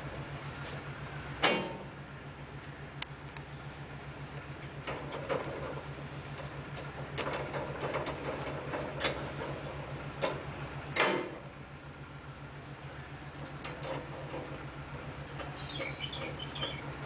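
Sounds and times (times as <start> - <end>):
steady low hum: 0.0 - 4.9.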